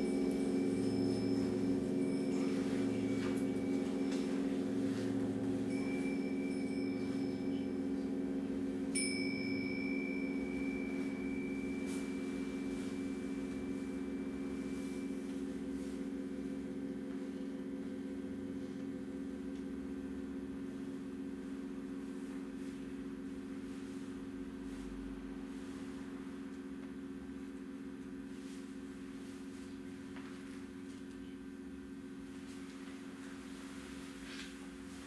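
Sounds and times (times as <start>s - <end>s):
small cymbals ringing: 0.0s - 16.1s
singing bowls humming: 0.0s - 35.0s.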